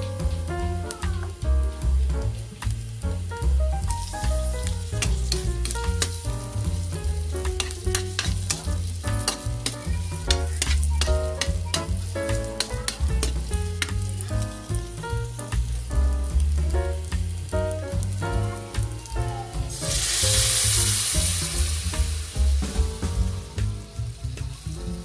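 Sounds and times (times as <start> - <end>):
meat and onion sizzling in wok: 0.0 - 25.0
metal spatula scraping wok: 4.0 - 14.2.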